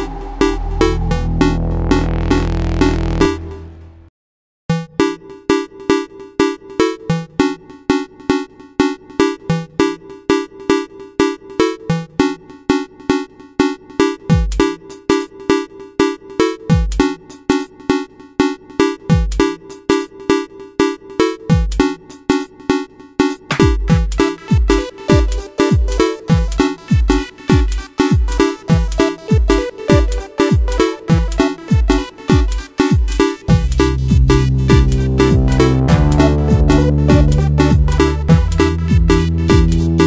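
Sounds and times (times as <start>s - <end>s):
electronic music with drum-machine beat: 21.5s - 40.0s.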